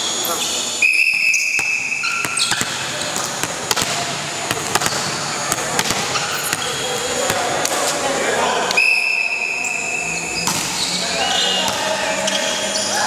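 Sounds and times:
chatter in gym hall: 0.0s - 13.0s
referee's whistle blast: 0.8s - 2.6s, 8.7s - 10.1s
volleyball bouncing on wooden floor: 1.1s - 7.8s, 10.4s - 10.8s.

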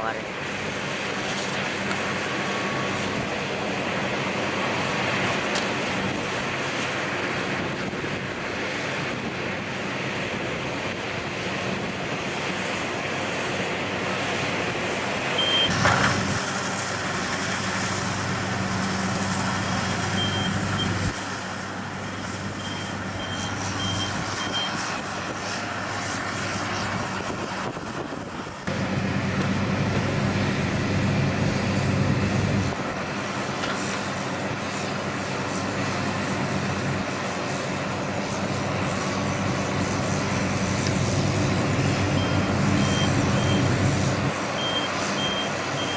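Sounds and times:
heavy diesel engines under load: 0.0s - 45.9s
backup alarm beeping: 15.4s - 15.8s, 20.2s - 21.0s, 22.1s - 24.8s, 42.2s - 43.7s, 44.6s - 45.9s.

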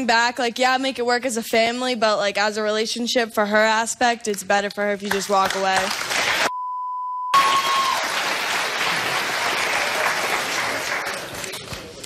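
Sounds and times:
audience applauding: 5.8s - 6.5s, 7.3s - 11.7s
censor bleep: 6.5s - 7.4s.

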